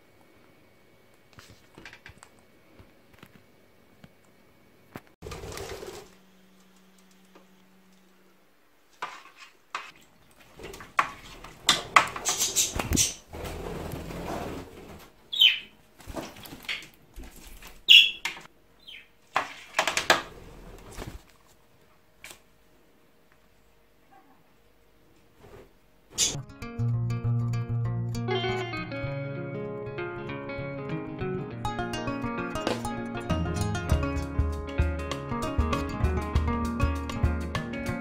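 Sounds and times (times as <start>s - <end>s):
wing flapping and splashing: 5.2s - 6.2s, 9.2s - 15.1s, 15.9s - 18.2s
parrot chirps: 15.3s - 15.7s, 17.9s - 19.1s.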